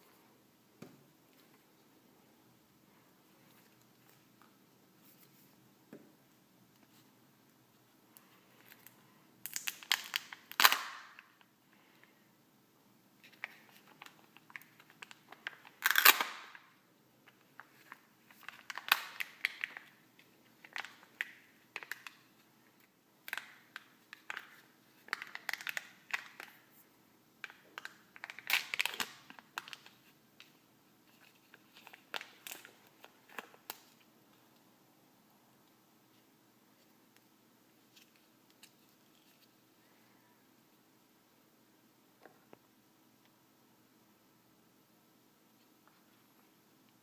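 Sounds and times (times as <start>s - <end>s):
plastic wrapper crinkling and tearing: 8.5s - 11.5s, 13.2s - 26.7s, 27.4s - 34.1s.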